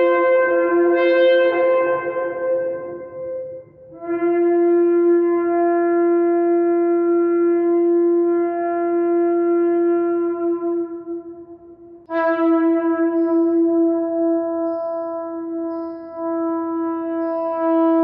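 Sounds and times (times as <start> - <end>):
shofar blast: 0.0 - 11.4, 12.1 - 14.6.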